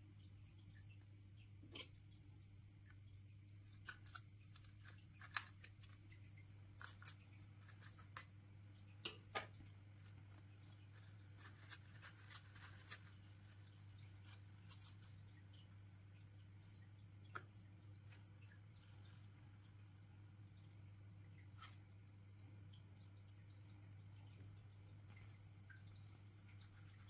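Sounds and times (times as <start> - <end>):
low steady hum: 0.0 - 27.0
plastic pot clicks and crackles: 2.8 - 19.7.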